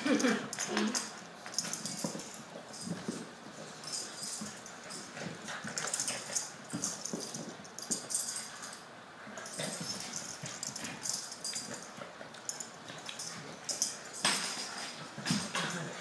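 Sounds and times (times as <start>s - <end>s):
paws scrabbling on wooden floor: 1.5s - 8.4s.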